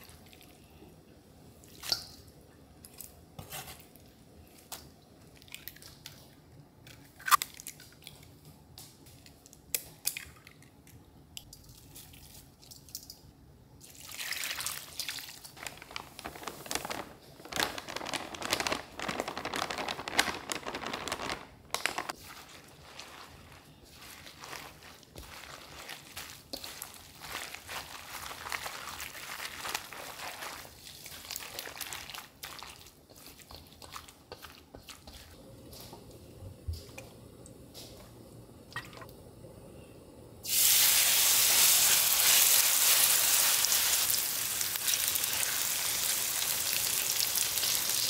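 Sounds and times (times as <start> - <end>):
flour rustling: 15.6 - 36.0.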